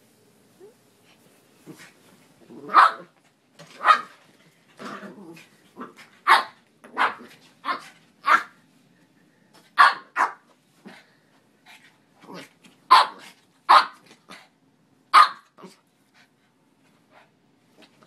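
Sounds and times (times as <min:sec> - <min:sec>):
dog yapping: 0:02.6 - 0:03.1, 0:06.2 - 0:08.6, 0:15.2 - 0:15.7
small dog barking: 0:02.6 - 0:03.1, 0:03.8 - 0:04.2, 0:05.8 - 0:08.6, 0:09.8 - 0:10.5, 0:12.9 - 0:14.0, 0:15.1 - 0:15.7.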